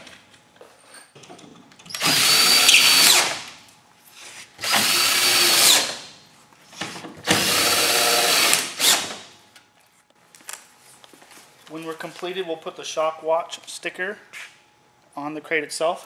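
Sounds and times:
cordless drill whining: 0:01.9 - 0:03.4, 0:04.6 - 0:06.0, 0:07.3 - 0:09.1.

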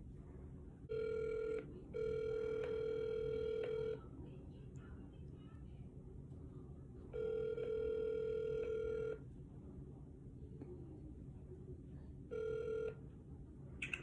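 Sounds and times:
telephone ringback tone: 0:00.9 - 0:04.0, 0:07.2 - 0:09.2, 0:12.3 - 0:13.0.

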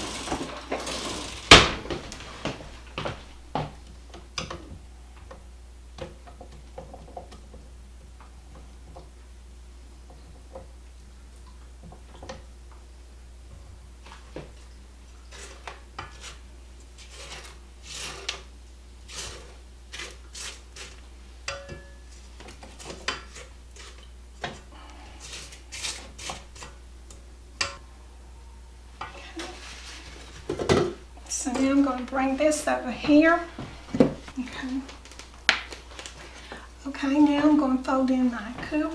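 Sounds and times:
spatula scraping metal bowl: 0:15.2 - 0:18.5, 0:19.1 - 0:21.9.

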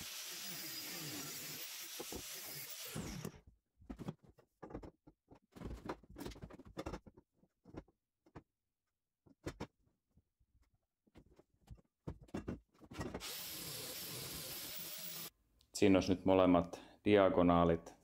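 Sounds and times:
angle grinder grinding steel: 0:00.0 - 0:03.3, 0:13.2 - 0:15.3.

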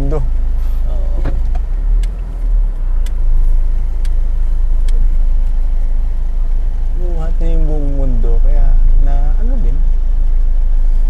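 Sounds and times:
car engine and road rumble: 0:00.0 - 0:11.0
light ticks: 0:01.2 - 0:02.2, 0:03.0 - 0:03.2, 0:04.0 - 0:04.2, 0:04.8 - 0:05.0.

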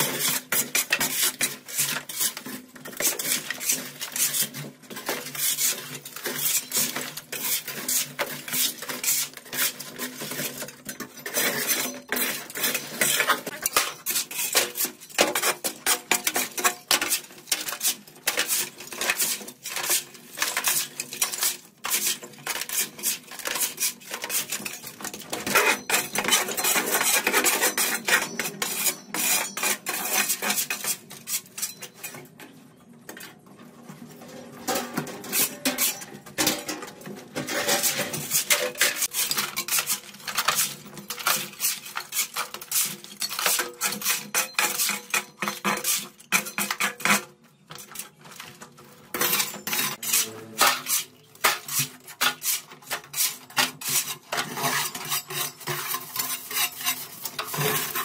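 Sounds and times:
dense clattering and scraping: 0:33.6 - 0:58.0.

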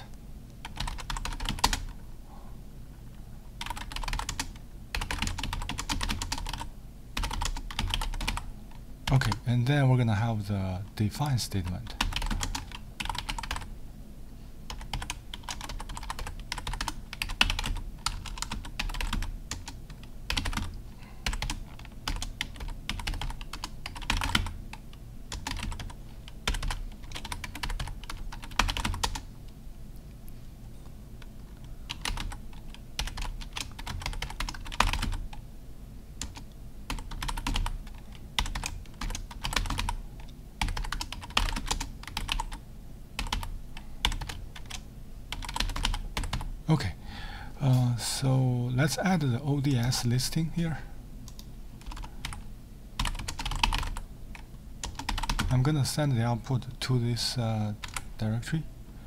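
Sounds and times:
typing on computer keyboard: 0:00.6 - 0:02.0, 0:03.6 - 0:08.4, 0:12.0 - 0:13.7, 0:14.7 - 0:29.2, 0:31.5 - 0:35.3, 0:36.2 - 0:40.0, 0:40.6 - 0:42.6, 0:43.2 - 0:46.5, 0:51.3 - 0:52.4, 0:53.0 - 0:54.0, 0:54.8 - 0:55.5, 0:57.8 - 0:58.0.

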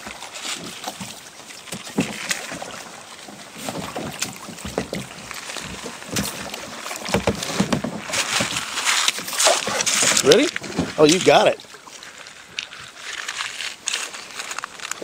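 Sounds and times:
water sloshing and splashing: 0:00.0 - 0:15.0
knocks against plastic hull: 0:07.0 - 0:08.6.

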